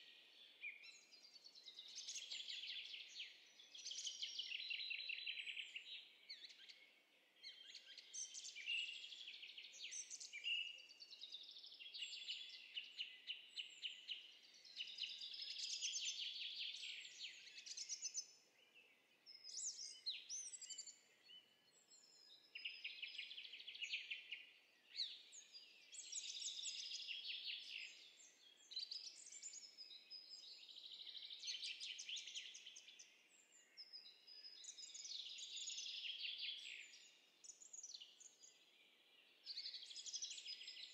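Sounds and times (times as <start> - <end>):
songbirds trilling and chirping: 0.0 - 40.9.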